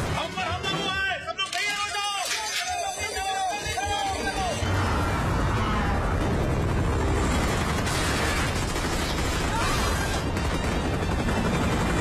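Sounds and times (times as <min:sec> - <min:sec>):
helicopter rumble: 0:03.2 - 0:12.0.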